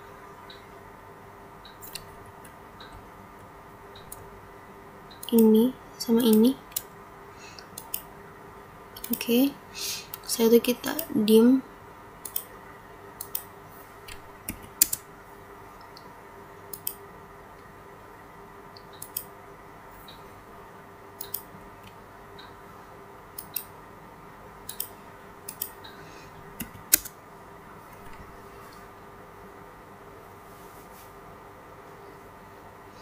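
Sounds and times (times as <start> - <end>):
faint steady hum: 0.0 - 33.0
mouse and keyboard clicks: 1.7 - 3.0, 21.2 - 21.5, 26.6 - 27.1.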